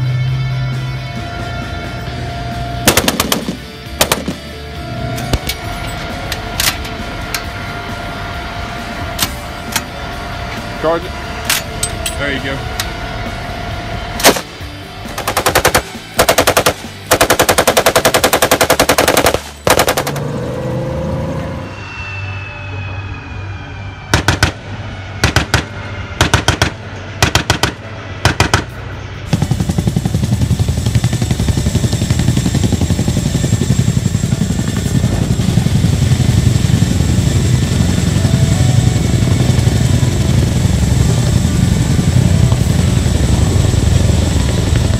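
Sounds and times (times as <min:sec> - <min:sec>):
turbine whine: 0:00.0 - 0:44.9
helicopter rotor chop: 0:01.2 - 0:21.1, 0:24.1 - 0:44.9
machine gun firing bursts: 0:02.9 - 0:04.5, 0:15.1 - 0:20.2, 0:25.2 - 0:28.6.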